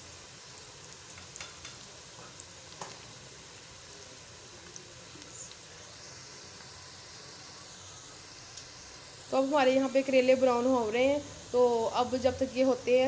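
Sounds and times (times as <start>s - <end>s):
vegetables sizzling in fat: 0.0s - 13.0s
small pops and crackles: 0.9s - 3.2s, 4.6s - 5.7s.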